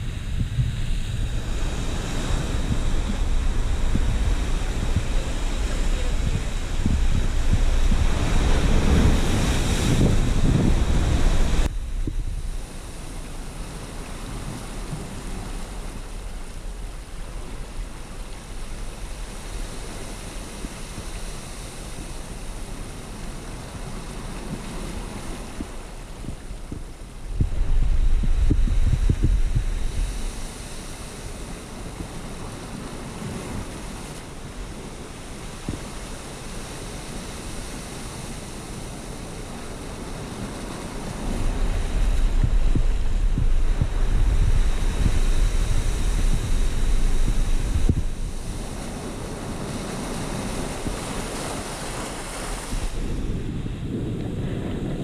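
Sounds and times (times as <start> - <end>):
heavy low rumble: 0.0 - 13.6, 26.2 - 30.4, 41.2 - 48.8
ocean surf rushing over rocks: 0.0 - 55.0.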